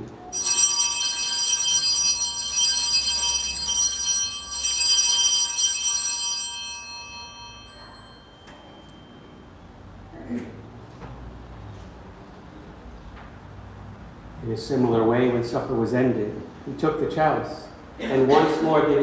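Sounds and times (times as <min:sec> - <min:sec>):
small bells ringing: 0:00.3 - 0:10.0.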